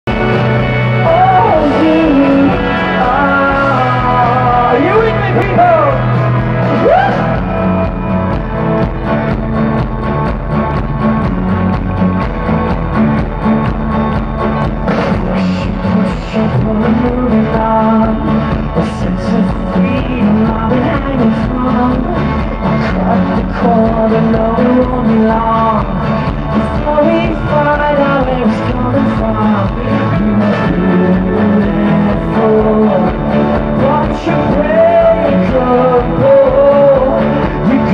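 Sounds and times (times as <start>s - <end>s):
amplified instrumental accompaniment: 0.0s - 37.9s
man singing into a microphone: 0.9s - 6.1s, 14.9s - 37.9s.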